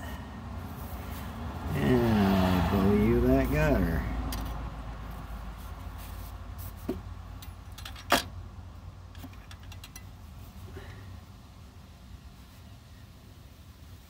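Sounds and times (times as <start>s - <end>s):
clicks of parts handled: 7.4s - 8.3s, 9.1s - 10.1s.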